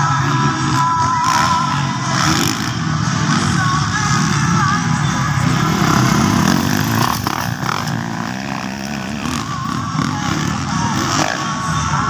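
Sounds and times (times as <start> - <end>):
dirt bikes revving: 0.0 - 12.0.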